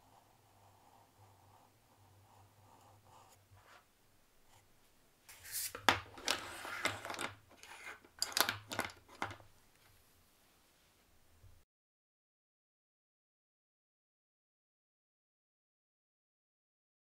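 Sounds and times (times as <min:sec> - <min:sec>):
plastic pens clicking and clattering: 0:05.9 - 0:09.5.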